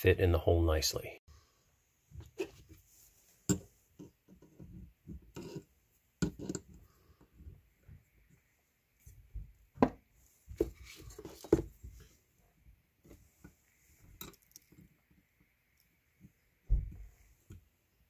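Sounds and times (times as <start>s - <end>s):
soft handling noise: 2.0s - 18.0s.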